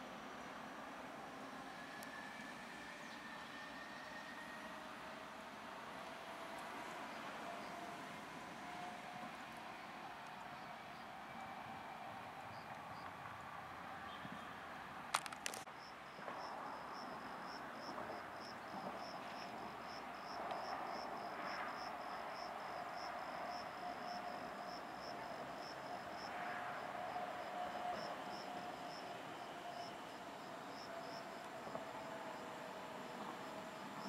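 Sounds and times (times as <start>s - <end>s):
cricket chirping: 15.2s - 34.0s.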